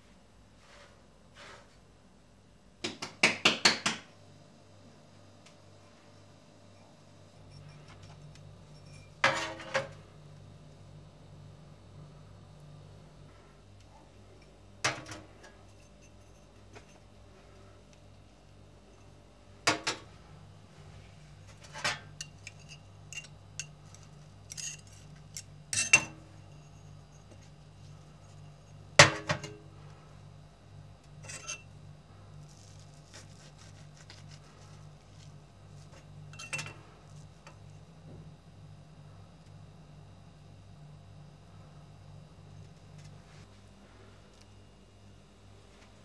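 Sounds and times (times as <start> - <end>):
low steady hum: 4.1 - 46.0
dishes and cutlery clinking: 36.3 - 36.8.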